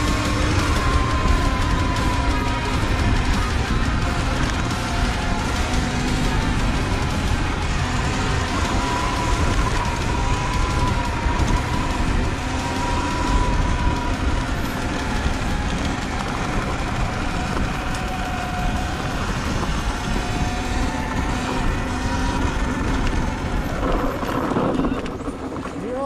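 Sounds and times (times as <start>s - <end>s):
electric motor whine: 0.0s - 25.8s
wind rumble on microphone: 0.0s - 26.0s.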